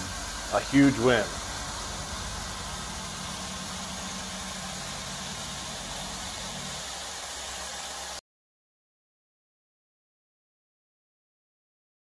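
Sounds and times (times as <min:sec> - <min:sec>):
low hum: 0:00.0 - 0:07.6
milling machine cutting hiss: 0:00.0 - 0:08.2.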